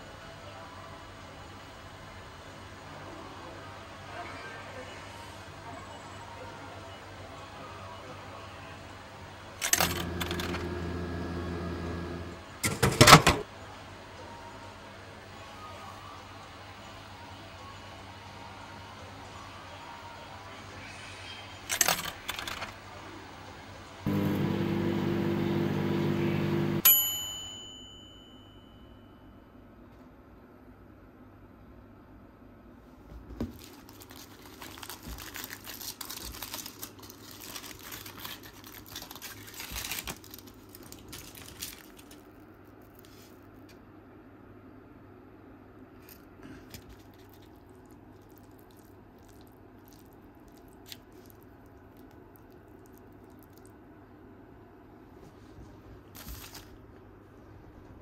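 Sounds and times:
low room hum: 0.0 - 58.0
microwave oven humming: 8.7 - 19.2, 21.7 - 32.9
microwave bell ding: 24.8 - 29.4
plastic fork stirring pasta: 46.7 - 53.7.

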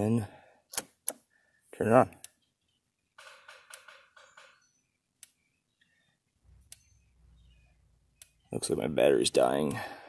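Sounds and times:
electric fence energizer ticking: 0.7 - 10.0
faint chirping: 3.9 - 9.6.

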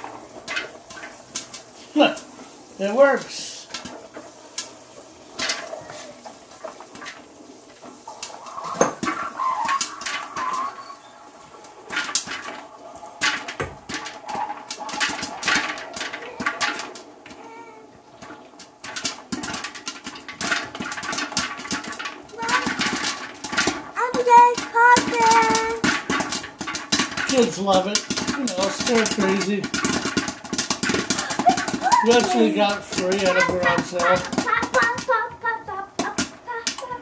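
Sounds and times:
popcorn kernels popping: 0.0 - 37.0.

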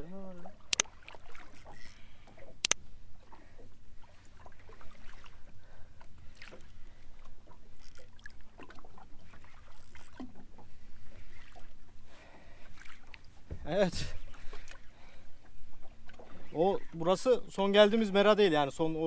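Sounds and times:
water lapping against boat hull: 0.0 - 19.0
small knocks and splashes: 0.4 - 11.7.

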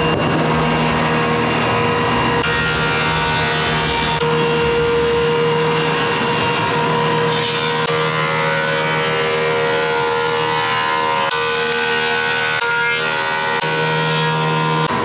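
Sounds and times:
planer machine running: 0.0 - 15.0.

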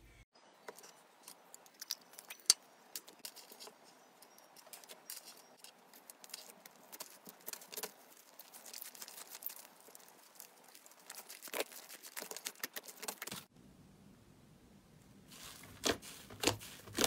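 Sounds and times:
slime crackling and popping: 6.0 - 13.5.

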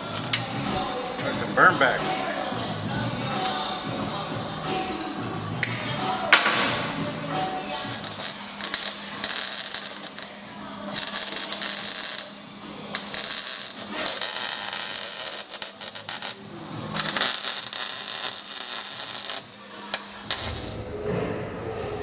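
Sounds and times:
arc welder crackling: 0.0 - 1.4, 4.9 - 20.9.

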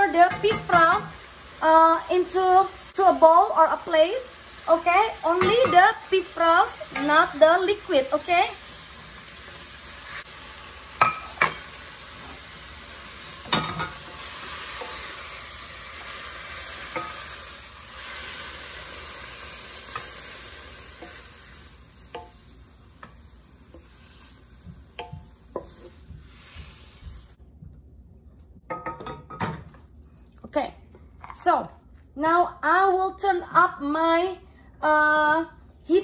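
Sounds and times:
food sizzling in a wok: 0.0 - 27.4.

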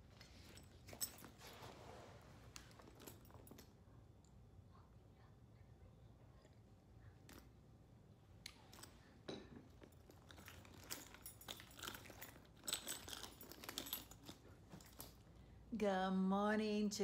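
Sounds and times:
small objects clicking and rustling: 8.5 - 15.2.

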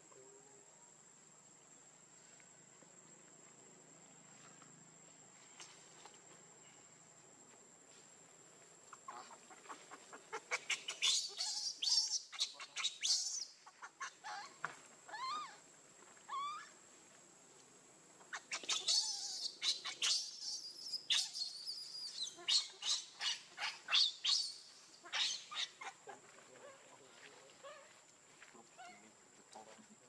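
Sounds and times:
baby monkey squealing cries: 10.4 - 15.6, 16.3 - 16.7, 18.3 - 26.0.

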